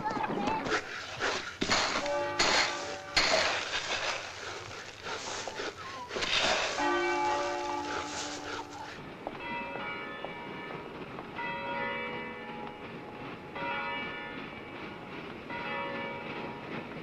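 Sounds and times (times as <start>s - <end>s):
church bells ringing: 1.8s - 3.6s, 6.2s - 16.8s.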